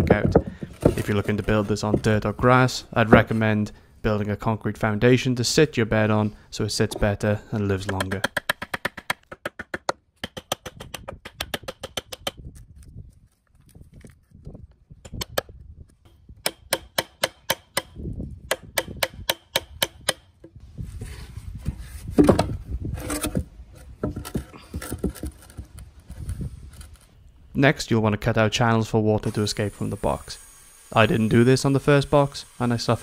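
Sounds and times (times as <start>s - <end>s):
wood scraping and splitting: 0.0s - 3.7s, 21.0s - 27.2s
chisel strikes on wood: 18.5s - 20.3s.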